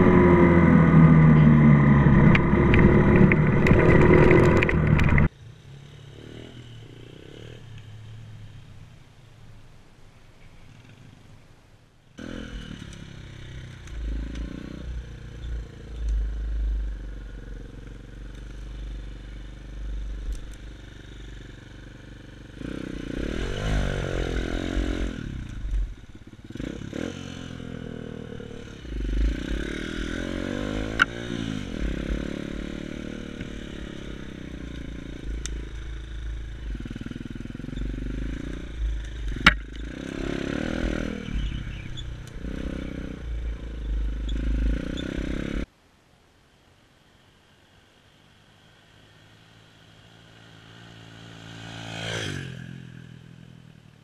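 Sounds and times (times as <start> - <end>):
motorbike engine revving: 0.0 - 7.6, 21.2 - 45.7
bike rattling: 1.8 - 5.3.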